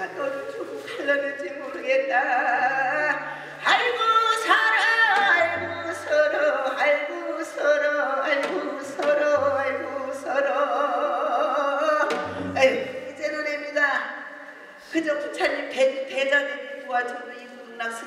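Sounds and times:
person singing with vibrato: 0.0s - 13.8s
low steady notes: 12.1s - 13.3s.

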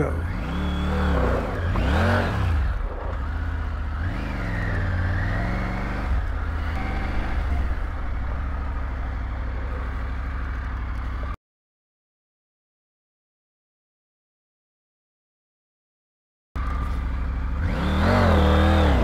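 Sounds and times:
motorcycle engine revving and idling: 0.0s - 11.4s, 16.6s - 19.0s.

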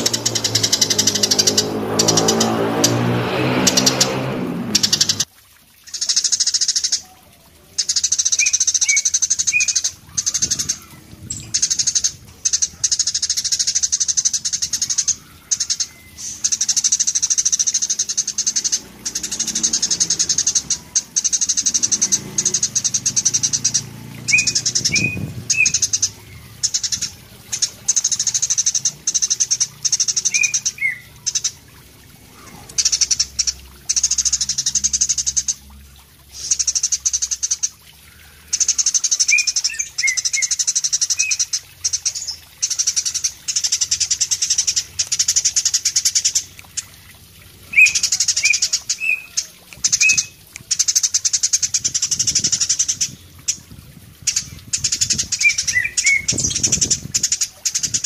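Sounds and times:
sparrow buzzy chattering song: 0.0s - 3.0s, 3.6s - 5.3s, 5.9s - 35.7s, 36.3s - 47.0s, 47.6s - 58.0s
sparrow chirps: 0.0s - 3.0s, 7.8s - 31.6s, 47.6s - 58.0s.

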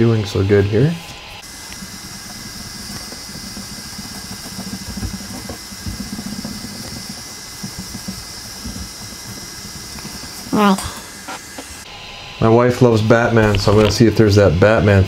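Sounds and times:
steady high hiss: 0.0s - 15.0s
wipe rubbing across print bed: 1.4s - 10.3s.

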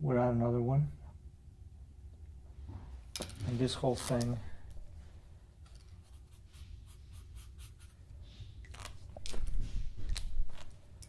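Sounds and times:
marker scratching on paper: 6.0s - 8.1s.

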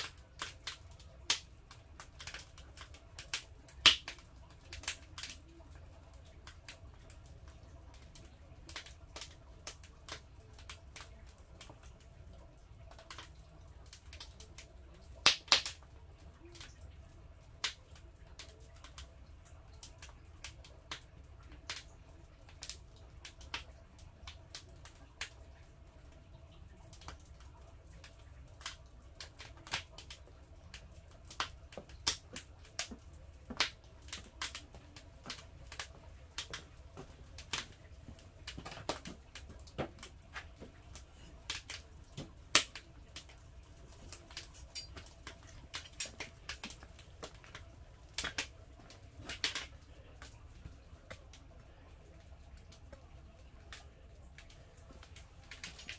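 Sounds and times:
firewood crackling and popping: 0.0s - 55.9s.

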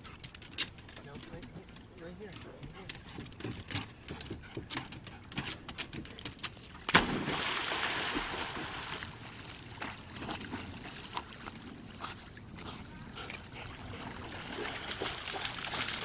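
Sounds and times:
light clicks and taps: 0.1s - 6.6s
dog splashing into water: 6.8s - 11.5s, 13.8s - 16.0s
dog swimming splashes: 6.8s - 16.0s.

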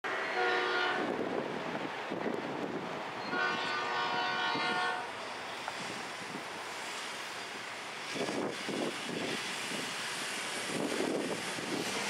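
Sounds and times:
locomotive air horn blasts: 0.2s - 1.1s, 3.3s - 5.1s.

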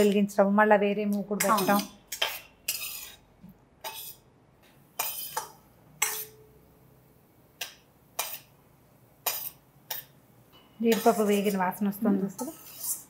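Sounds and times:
ladle clinking and scraping pan: 1.4s - 3.2s, 3.8s - 4.2s, 5.0s - 6.4s, 9.2s - 13.0s.

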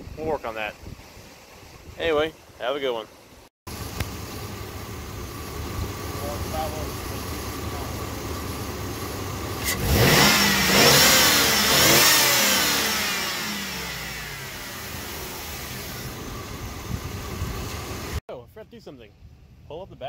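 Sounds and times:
car engine idling and revving: 3.7s - 18.2s.

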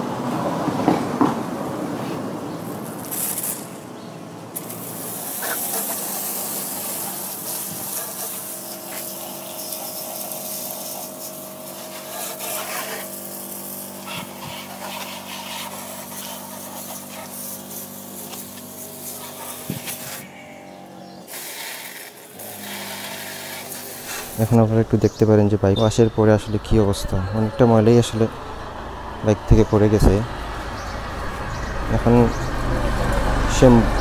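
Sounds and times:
hose water spraying: 2.6s - 3.8s, 4.5s - 20.5s, 21.2s - 25.4s
electric water pump humming: 2.7s - 34.0s.

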